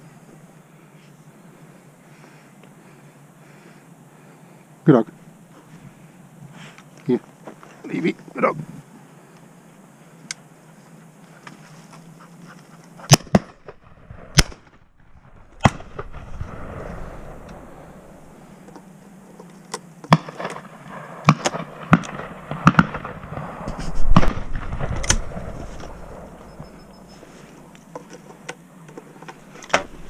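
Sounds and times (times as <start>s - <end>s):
shotgun shots: 13.1s - 14.8s, 15.6s - 18.3s, 20.1s - 26.8s.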